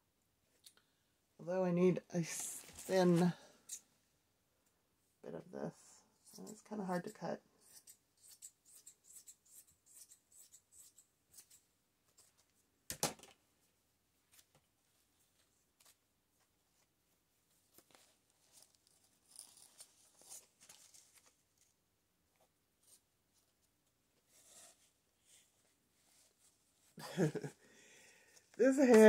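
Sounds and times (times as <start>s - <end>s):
scissors cutting fabric: 6.3s - 12.3s.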